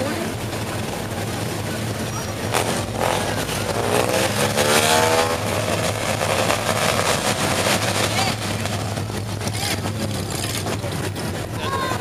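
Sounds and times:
car engines rumbling: 0.0s - 12.0s
engine revving: 2.4s - 11.4s.

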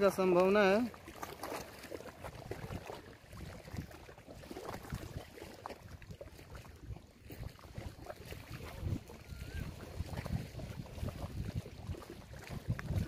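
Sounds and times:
small waves lapping: 0.0s - 13.0s
wind gusting over microphone: 6.8s - 13.0s.

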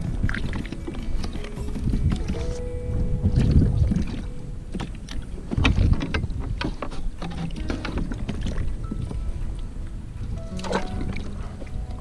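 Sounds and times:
water slapping kayak hull: 0.0s - 12.0s
wind buffeting microphone: 0.0s - 12.0s
gear knocks and clicks: 4.7s - 8.6s.

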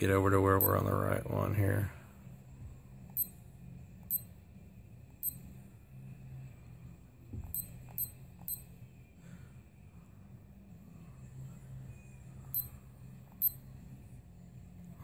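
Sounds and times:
low steady hum: 0.0s - 15.0s
short high electronic beeps: 5.2s - 5.5s, 7.5s - 8.7s, 12.6s - 12.8s.

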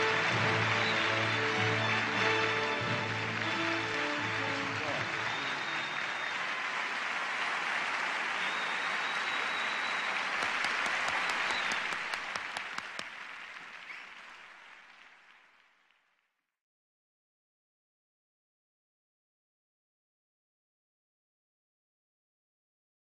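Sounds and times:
sharp close hand claps: 0.0s - 16.0s
audience applause: 0.0s - 16.2s.

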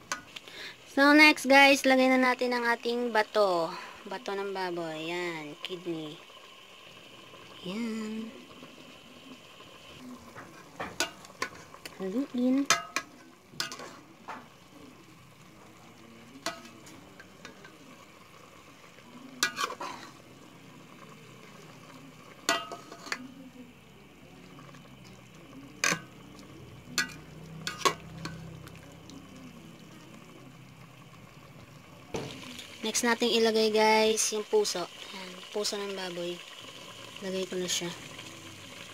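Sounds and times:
faint simmering: 0.0s - 38.9s
metal ladle scraping pot: 12.7s - 14.5s, 19.4s - 20.2s, 22.4s - 23.3s, 25.8s - 26.2s, 26.9s - 28.4s.

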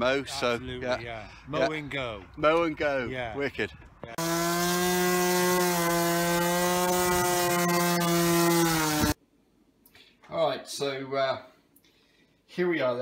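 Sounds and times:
electric motor humming: 4.2s - 9.2s.

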